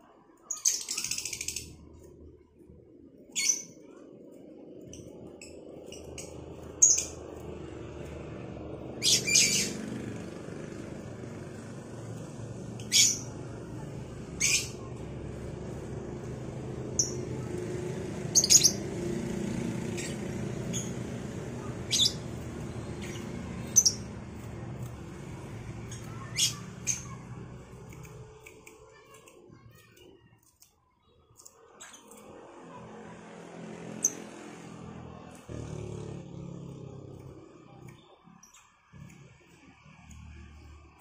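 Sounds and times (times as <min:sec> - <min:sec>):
lovebirds chirping and squawking: 0:00.4 - 0:02.1, 0:03.2 - 0:11.7, 0:12.3 - 0:17.3, 0:18.2 - 0:27.2, 0:33.9 - 0:34.4.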